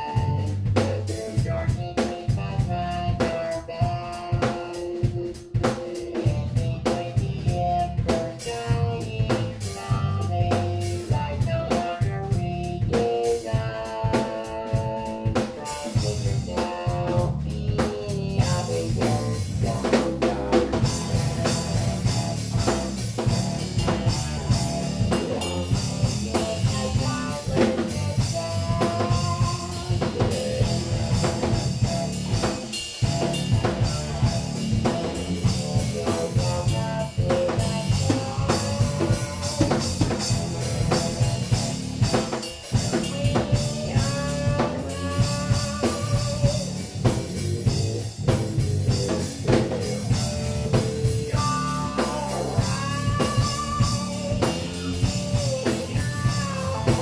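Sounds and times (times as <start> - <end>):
drum kit steady beat: 0.0 - 57.0
electric bass: 0.0 - 57.0
electric guitar bent notes: 12.8 - 57.0.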